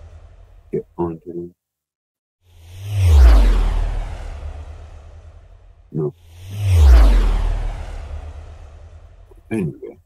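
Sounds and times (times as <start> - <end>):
vehicle passing by: 2.5 - 9.4.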